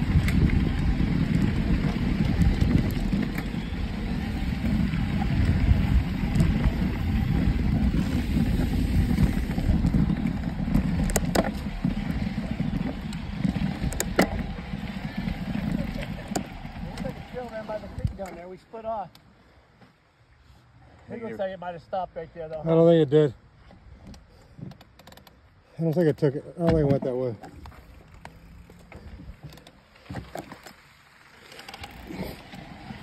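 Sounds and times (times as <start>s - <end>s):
wind on microphone: 0.0s - 18.2s
bike tyres rumbling on dirt: 0.0s - 18.7s, 26.6s - 33.0s
bike clicks and rattles: 0.0s - 19.3s, 23.7s - 33.0s.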